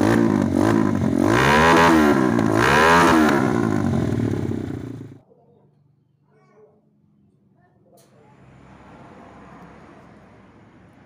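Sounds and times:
motorcycle engine revving: 0.0 - 5.2.

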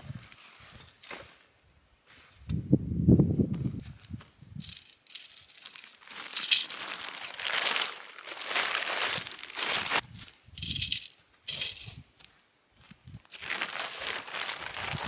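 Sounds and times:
plastic sheeting crinkling: 4.8 - 10.0, 13.3 - 15.0.

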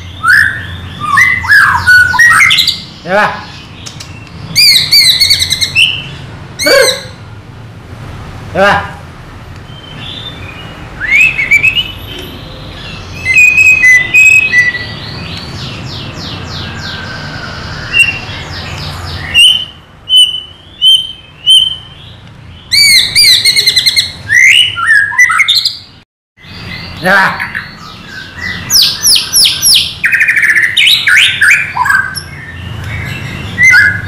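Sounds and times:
songbird singing varied song: 9.6 - 34.0.

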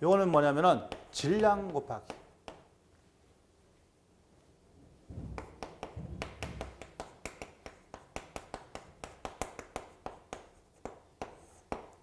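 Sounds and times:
chalk tapping and scraping on chalkboard: 0.2 - 2.8, 5.4 - 12.0.

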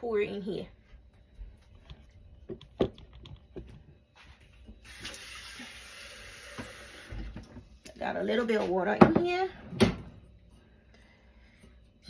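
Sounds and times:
tap water running into metal pot: 4.8 - 7.3.

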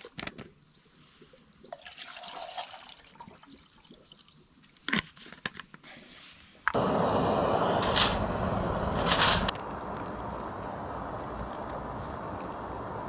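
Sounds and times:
water pouring into metal pot: 1.7 - 3.5.

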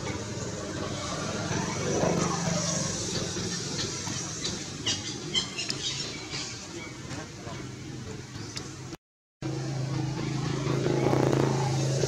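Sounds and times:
baby monkey squealing: 3.8 - 6.6.

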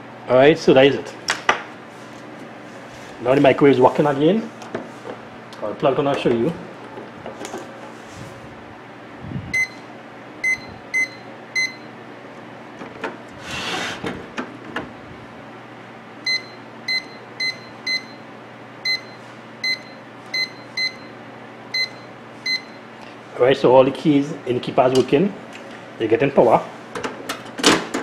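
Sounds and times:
microwave keypad beeps: 9.6 - 9.8, 10.4 - 11.9, 16.2 - 18.2, 18.8 - 21.1, 21.7 - 22.8.

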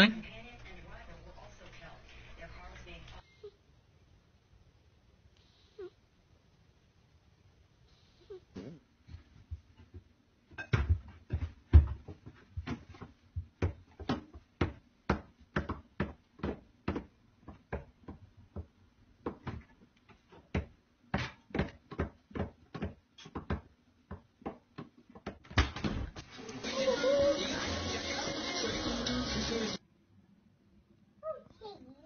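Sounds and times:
knocking in wooden cabinet: 20.4 - 25.8.

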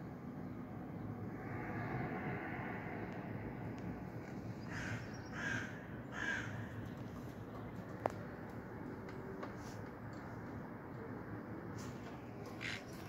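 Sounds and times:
harsh caw-like bird calls: 4.5 - 7.1, 12.5 - 13.0.

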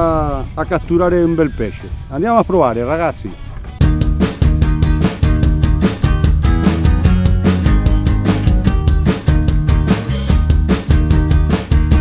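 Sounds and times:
rock music with drums and guitar: 3.4 - 12.0.

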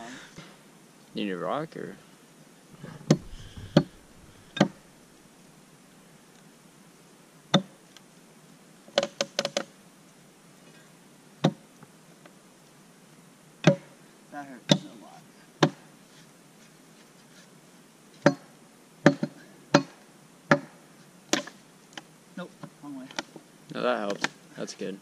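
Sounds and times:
axe knocking on log: 3.0 - 4.8, 19.1 - 20.7.

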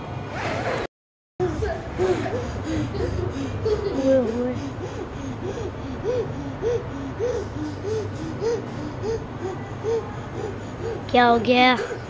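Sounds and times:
girl whimpering moans: 1.4 - 12.0
low steady hum: 1.4 - 12.0.

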